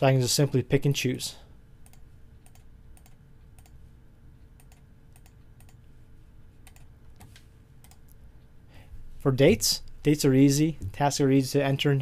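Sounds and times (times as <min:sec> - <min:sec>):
faint steady hum: 0:00.0 - 0:12.0
keyboard and mouse clicking: 0:01.8 - 0:03.8, 0:04.6 - 0:05.8, 0:06.6 - 0:08.2.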